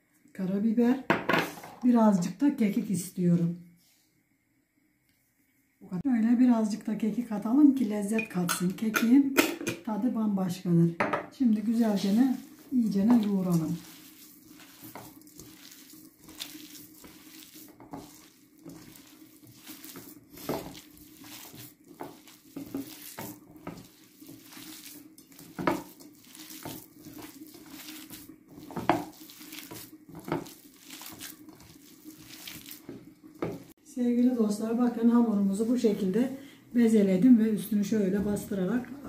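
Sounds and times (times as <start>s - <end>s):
hands kneading wet minced meat: 11.4s - 36.3s.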